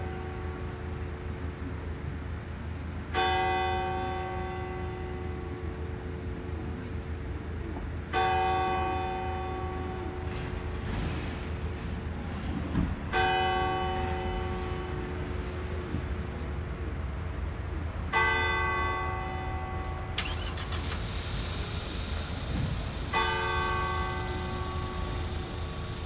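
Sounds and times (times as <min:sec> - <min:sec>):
car passing: 0:20.2 - 0:26.0
steady low rumble: 0:20.6 - 0:26.0
church bell tolling: 0:21.4 - 0:26.0.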